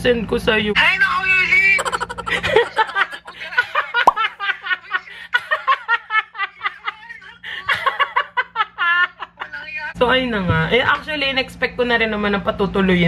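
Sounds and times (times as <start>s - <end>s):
women laughing: 1.8s - 9.7s.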